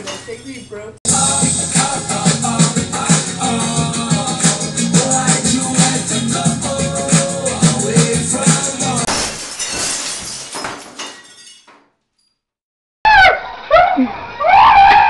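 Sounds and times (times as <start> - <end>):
music: 1.1 - 9.1
shattering crash: 9.0 - 11.8.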